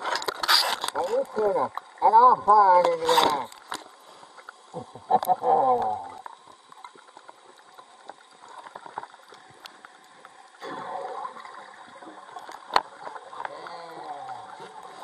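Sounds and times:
underwater clicks and crackles: 0.0s - 15.0s
air bubbles gurgling: 4.7s - 15.0s.

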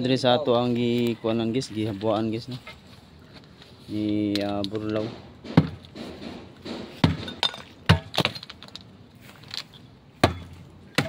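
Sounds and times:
broken pieces clinking: 7.3s - 9.7s.

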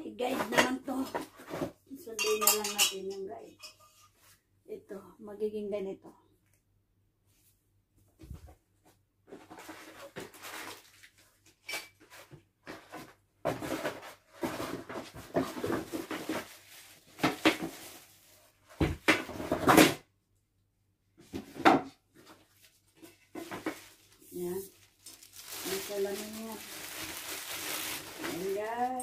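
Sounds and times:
cardboard and plastic rustling: 0.2s - 2.0s, 8.2s - 20.0s, 21.2s - 29.0s.

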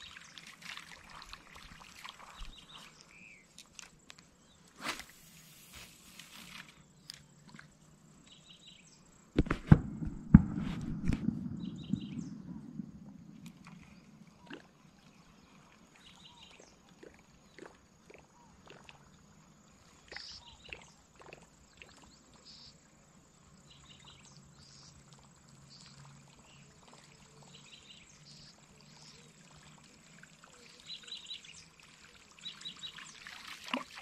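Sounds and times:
light water sounds: 0.0s - 34.0s.

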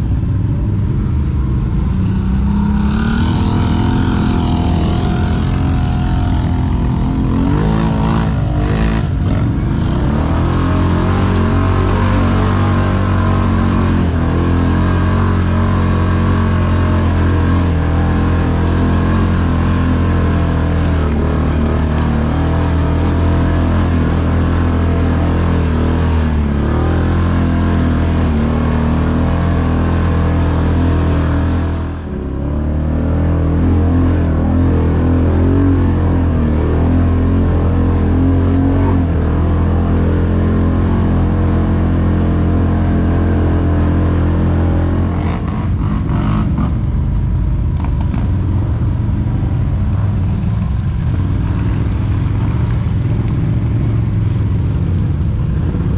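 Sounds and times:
atv engine running under load: 42.5s - 55.9s.

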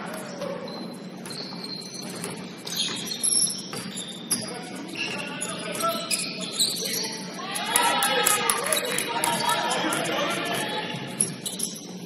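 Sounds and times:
sneakers squeaking on court floor: 0.2s - 12.0s
basketball bouncing: 1.2s - 4.5s
players calling out: 4.4s - 11.4s.

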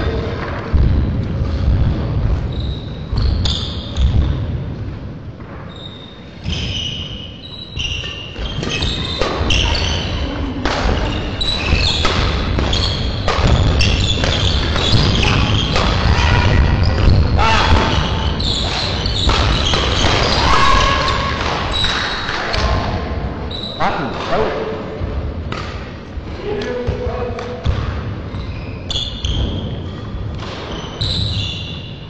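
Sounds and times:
shoes squeaking on court floor: 2.4s - 4.4s, 5.6s - 16.1s, 16.8s - 22.7s, 27.6s - 32.0s
rackets striking shuttlecock: 10.6s - 16.1s, 18.6s - 20.4s.

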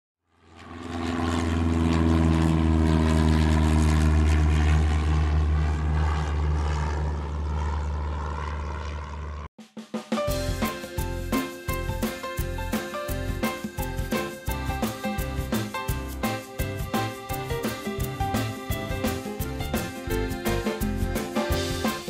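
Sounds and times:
light aircraft engine droning: 0.3s - 9.5s, 10.6s - 22.0s
music with drum beat: 9.6s - 22.0s.

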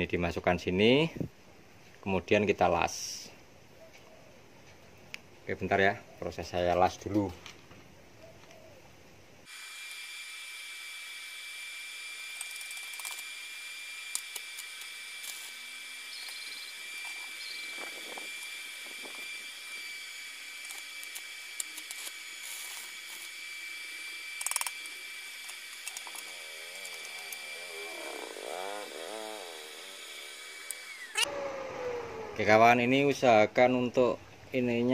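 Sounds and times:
steady high-pitched whine: 9.4s - 34.9s
welding crackles: 11.3s - 31.3s.

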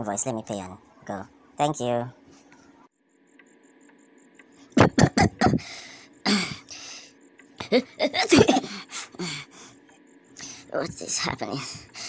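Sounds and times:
man coughing: 4.8s - 5.7s, 6.3s - 6.7s
breathy gasps: 5.6s - 7.1s, 8.6s - 9.7s.

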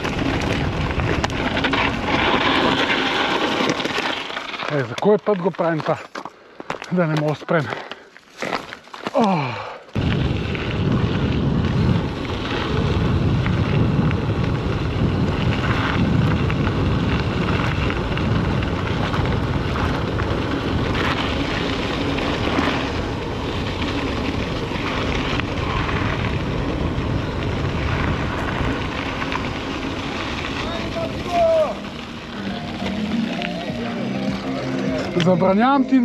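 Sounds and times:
wind buffeting the microphone: 10.0s - 32.3s
low rumble: 10.0s - 35.6s.

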